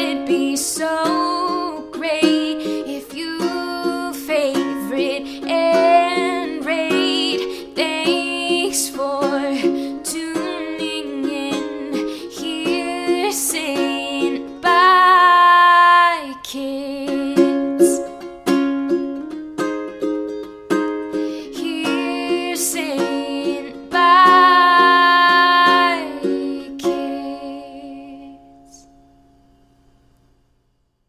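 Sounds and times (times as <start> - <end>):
plucked ukulele music: 0.0 - 29.3.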